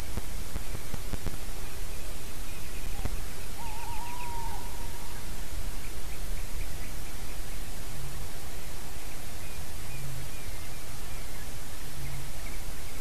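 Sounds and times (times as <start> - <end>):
distant songbird: 0.0 - 13.0
low rumble and hiss: 0.0 - 13.0
owl hooting: 2.8 - 5.4.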